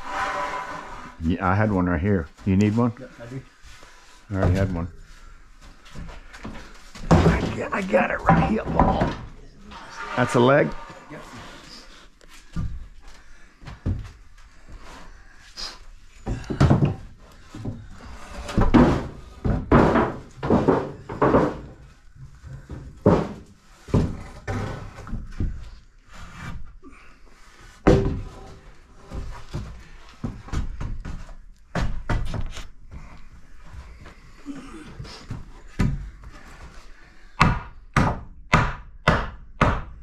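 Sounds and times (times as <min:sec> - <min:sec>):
wooden thumps and knocks: 0:06.0 - 0:09.4, 0:16.2 - 0:25.6, 0:27.8 - 0:32.5.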